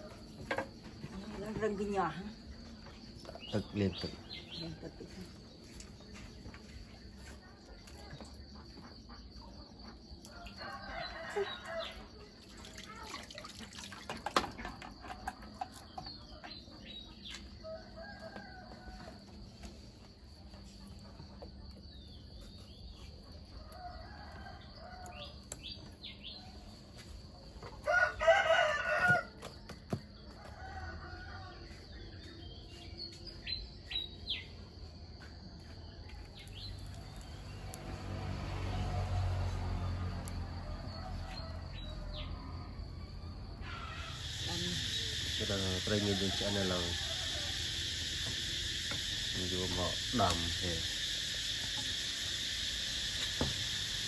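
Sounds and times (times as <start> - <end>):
birds chirping: 1.2 - 9.9
rooster crowing: 10.2 - 12.2, 17.6 - 19.6, 23.6 - 25.6, 27.7 - 29.5, 30.3 - 31.9, 37.1 - 49.4
insect buzz: 36.2 - 54.0
chicken calls: 40.9 - 54.0.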